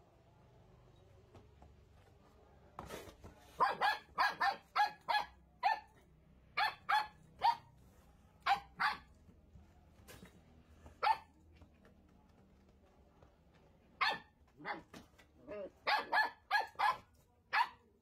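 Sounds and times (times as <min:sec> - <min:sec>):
puppy barking in high yaps: 0:03.6 - 0:06.0, 0:06.6 - 0:07.7, 0:08.4 - 0:09.1, 0:11.0 - 0:11.3, 0:14.0 - 0:17.9.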